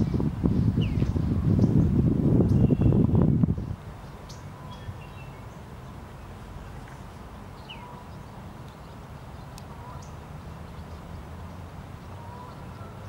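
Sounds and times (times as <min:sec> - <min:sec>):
faint bird chirps: 0:02.5 - 0:05.6.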